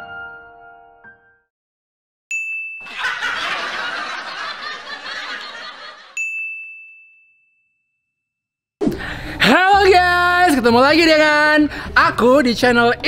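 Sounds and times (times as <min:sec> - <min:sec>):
bright bell ding: 0:02.3 - 0:03.0, 0:06.2 - 0:08.0
crowd laughter: 0:02.8 - 0:06.2.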